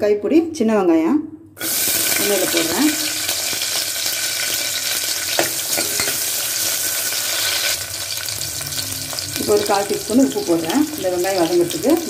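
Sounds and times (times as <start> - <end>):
onions sizzling in hot oil: 1.6 - 12.0.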